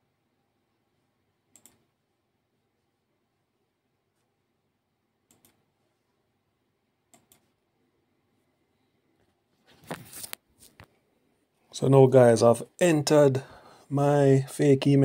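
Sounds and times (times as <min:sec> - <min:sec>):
computer mouse clicks: 0:01.5 - 0:01.9, 0:05.2 - 0:05.7, 0:07.1 - 0:07.6.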